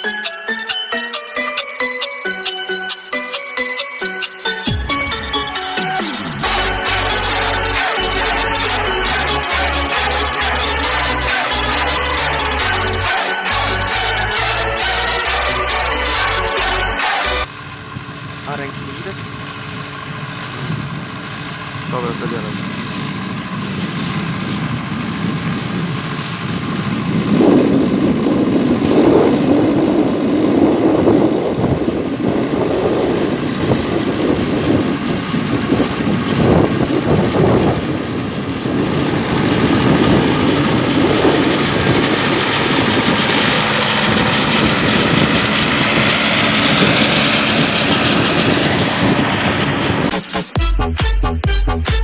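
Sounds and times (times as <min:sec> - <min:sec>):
tractor engine running: 0:00.0 - 0:51.9
rotary mower cutting grass: 0:04.2 - 0:50.5
wind buffeting microphone: 0:17.8 - 0:50.1.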